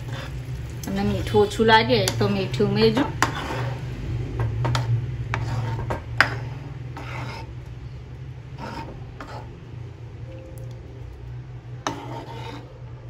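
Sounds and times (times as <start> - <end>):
spoon scraping a pot: 0.0 - 7.6, 8.5 - 9.6, 11.8 - 12.8
steady low hum: 0.0 - 13.0.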